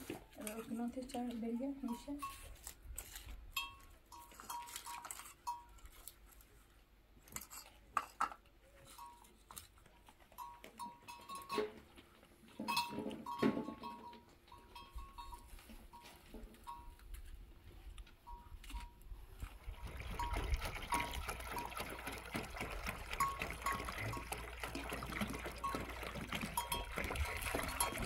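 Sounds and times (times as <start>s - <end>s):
sharp knocks and clinks: 10.3s - 11.9s, 12.5s - 17.0s.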